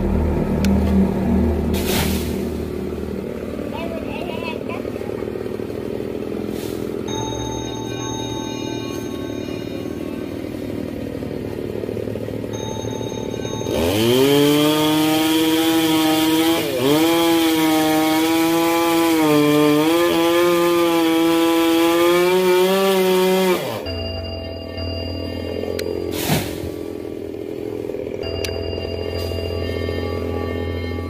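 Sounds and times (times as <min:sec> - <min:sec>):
chainsaw cutting a tree limb: 0:13.7 - 0:23.9.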